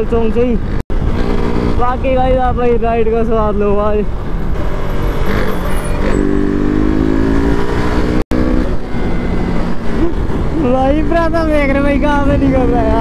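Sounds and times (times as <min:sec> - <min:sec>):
wind and road rush: 0:00.0 - 0:13.0
motorcycle engine accelerating: 0:00.9 - 0:02.2, 0:04.6 - 0:13.0.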